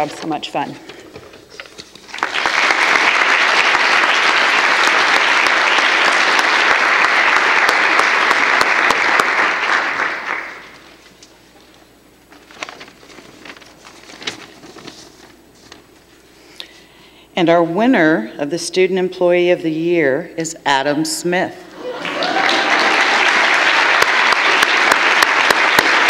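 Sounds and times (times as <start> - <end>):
audience applauding: 2.1 - 10.9, 21.8 - 26.0.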